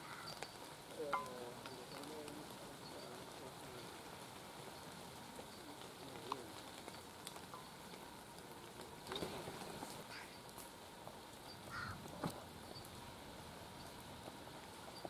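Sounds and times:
distant wavering calls: 0.0s - 15.0s
faint steady hiss: 0.0s - 15.0s.

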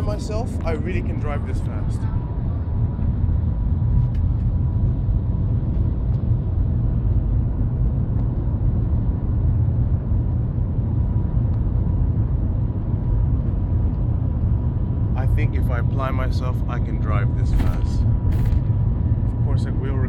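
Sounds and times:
train cabin rumble: 15.2s - 20.0s.

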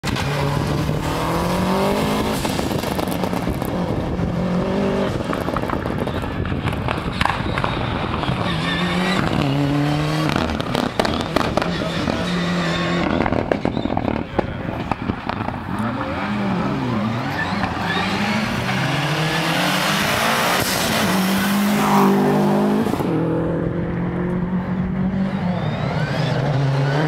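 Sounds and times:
rally car engine revving: 0.0s - 27.0s
exhaust cracks and pops: 5.2s - 8.5s, 10.3s - 11.8s, 13.0s - 15.8s.

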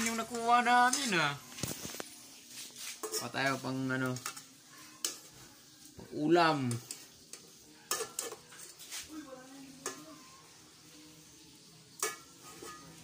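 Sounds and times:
fish sizzling in oil: 0.0s - 13.0s.

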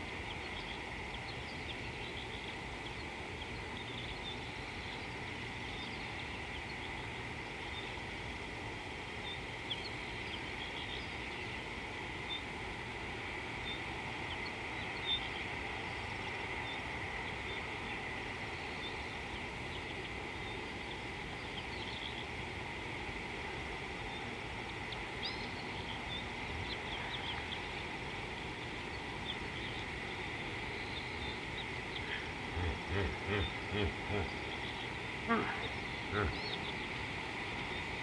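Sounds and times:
low rumble and hiss: 0.0s - 38.0s
high thin hum: 31.3s - 38.0s.

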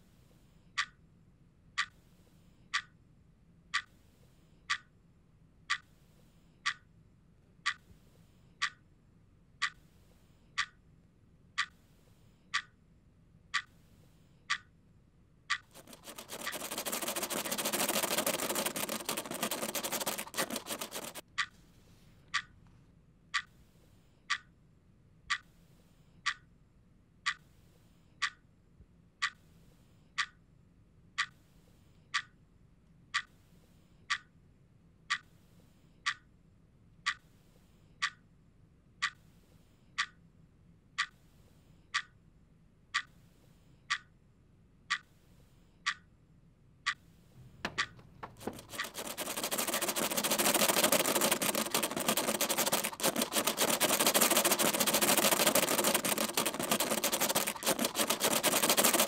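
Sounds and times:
clock ticking: 6.6s - 6.8s, 8.6s - 8.8s, 10.6s - 10.8s, 15.5s - 21.5s, 46.9s - 59.0s.

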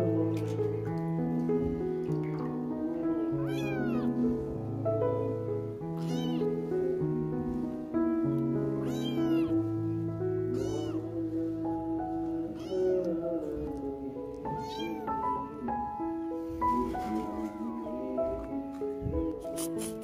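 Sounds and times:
background music with held notes: 0.0s - 20.0s
kitten meowing: 3.3s - 4.3s, 6.0s - 6.7s, 8.8s - 9.6s, 10.5s - 11.2s, 12.4s - 13.5s, 14.5s - 15.2s.

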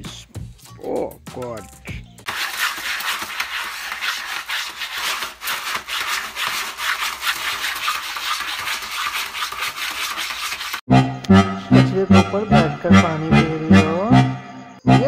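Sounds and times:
cat scratching pellet litter: 2.3s - 10.8s.

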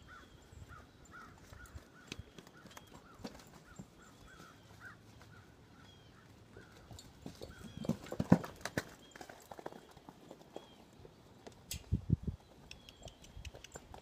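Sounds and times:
hooves thudding on muddy ground: 1.3s - 11.6s.

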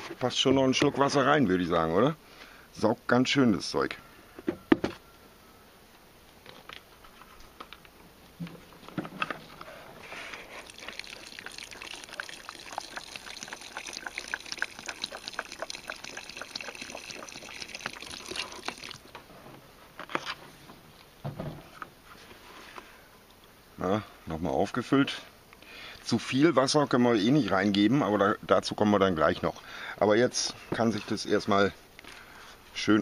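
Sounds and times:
water pouring into plastic bucket: 10.2s - 19.1s.

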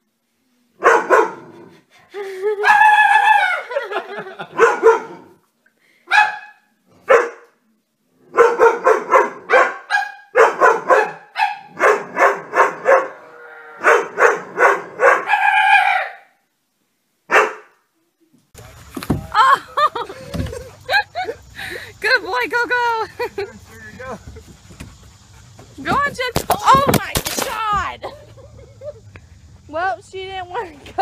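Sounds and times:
dog barking: 0.8s - 1.4s, 4.5s - 5.3s, 6.1s - 7.5s, 8.3s - 13.2s, 13.8s - 16.2s, 17.3s - 17.7s.

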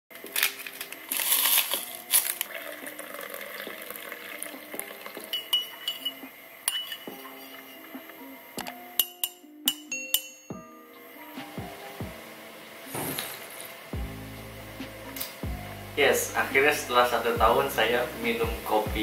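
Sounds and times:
coffee sachet rustling: 0.1s - 5.2s
water running into cup: 1.1s - 8.0s
spoon clinking against cup: 5.3s - 8.0s, 8.9s - 10.6s.

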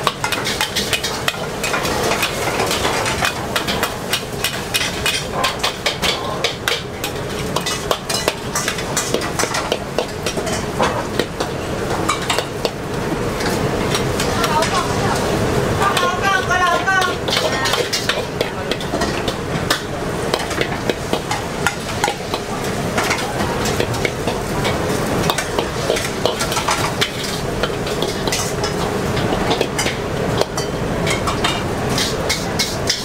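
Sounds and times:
noodles sizzling in wok: 0.0s - 33.0s
ladle clinking against wok: 16.7s - 33.0s
metal ladle scraping: 30.6s - 33.0s.

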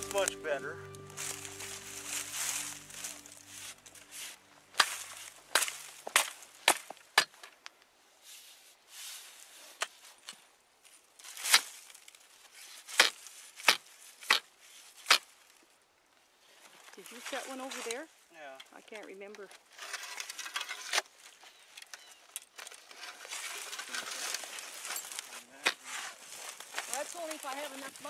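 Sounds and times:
ice chisel striking ice: 12.9s - 14.4s.

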